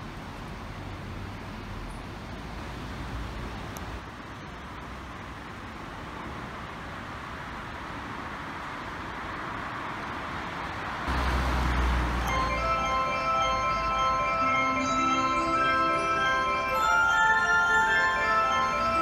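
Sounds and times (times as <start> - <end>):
electric train humming: 11.1 - 19.0
chiming melody: 12.2 - 19.0.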